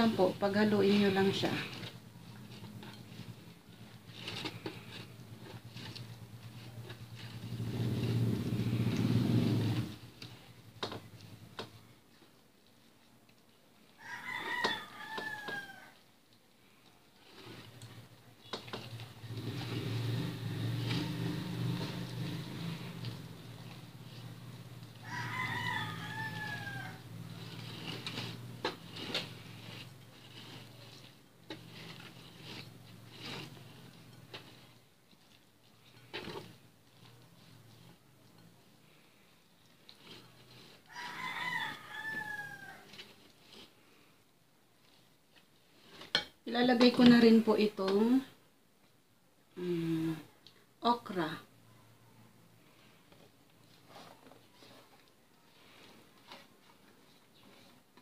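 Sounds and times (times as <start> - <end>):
spatula stirring batter in bowl: 0.0 - 48.4, 52.6 - 58.0
rooster crowing: 14.0 - 16.0, 25.0 - 27.4, 40.9 - 43.0.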